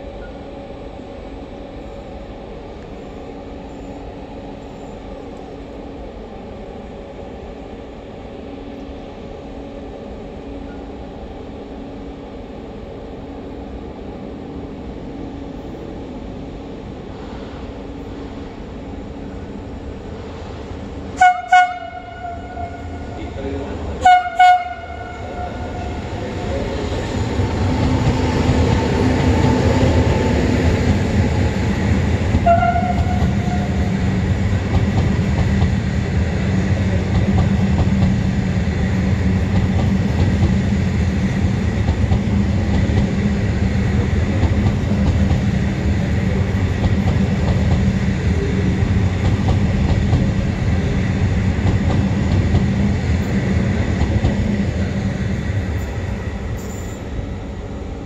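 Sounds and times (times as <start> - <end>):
train wheels rumbling on rails: 10.1 - 58.0
train horn: 21.2 - 23.3, 24.0 - 26.1, 32.4 - 33.9.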